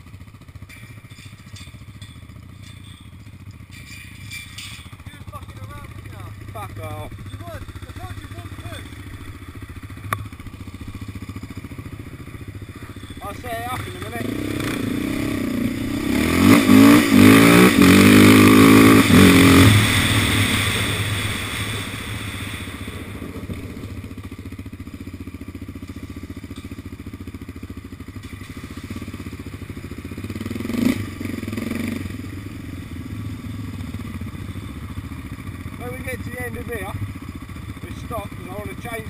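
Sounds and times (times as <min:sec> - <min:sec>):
metal clank: 0:00.5 - 0:06.0
quad engine revving: 0:00.7 - 0:39.0.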